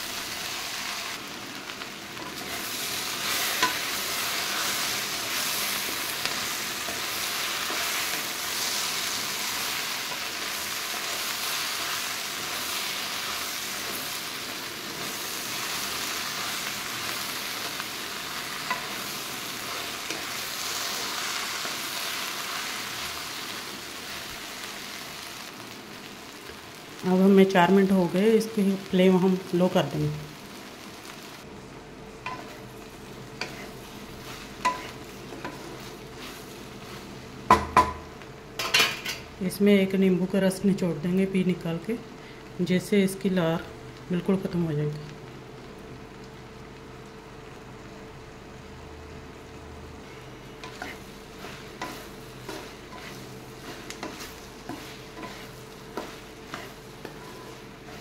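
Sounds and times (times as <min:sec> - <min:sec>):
vegetables sizzling in pan: 0:00.0 - 0:58.0
spatula scraping and tapping pan: 0:03.4 - 0:03.9, 0:33.4 - 0:38.0, 0:50.6 - 0:58.0.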